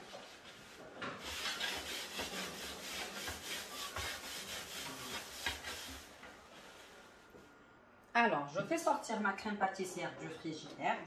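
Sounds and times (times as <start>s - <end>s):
scraping and rubbing strokes: 0.0s - 7.0s.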